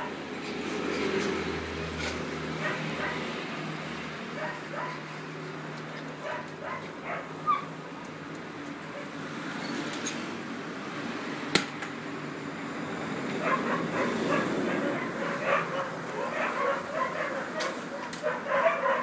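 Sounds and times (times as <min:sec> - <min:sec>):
puppies yipping and whining: 0:06.2 - 0:07.7, 0:13.4 - 0:19.0.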